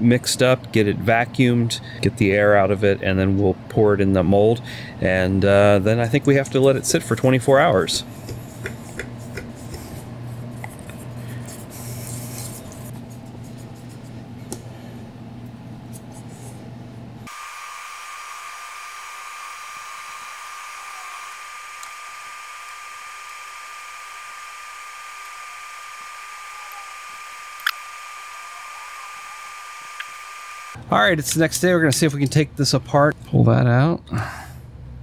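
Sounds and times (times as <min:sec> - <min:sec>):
vacuum pump whining: 0:06.1 - 0:15.6, 0:17.0 - 0:30.8.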